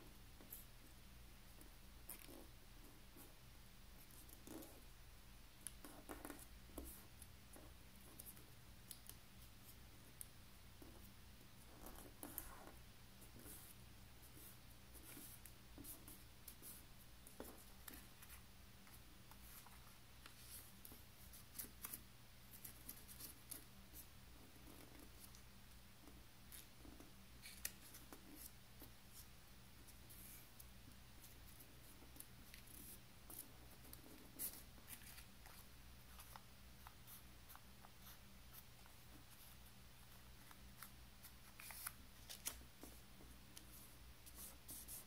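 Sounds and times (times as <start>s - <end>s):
soft clicks and crinkles: 15.0s - 45.0s
paper rustling and creasing: 34.4s - 38.9s, 40.2s - 43.0s.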